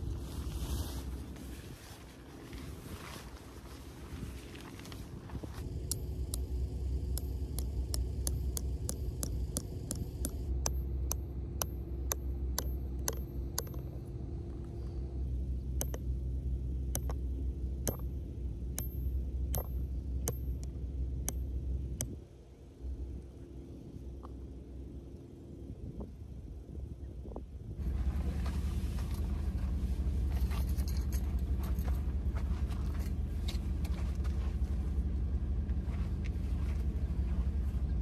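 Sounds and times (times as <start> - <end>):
low rumble: 0.0 - 38.0
hammer striking metal tent peg: 7.1 - 14.0, 16.9 - 17.2, 17.8 - 18.2, 18.8 - 22.2.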